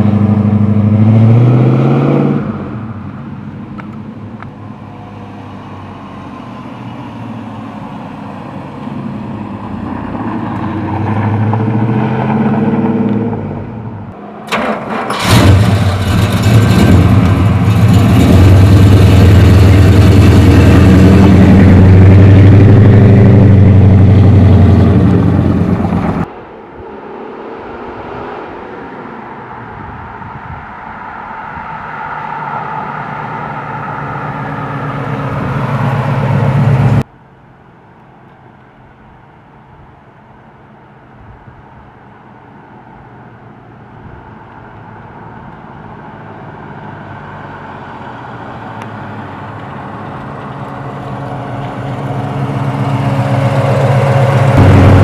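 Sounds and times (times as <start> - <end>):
car engine running: 15.1 - 26.3, 50.6 - 55.0.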